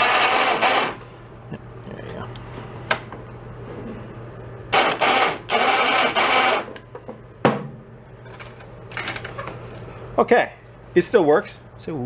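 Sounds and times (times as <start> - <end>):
electric winch motor running: 0.0 - 1.0, 4.7 - 6.8.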